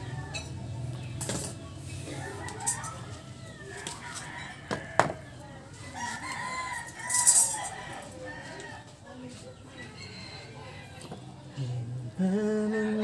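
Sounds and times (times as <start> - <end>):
rooster crowing: 2.1 - 8.8.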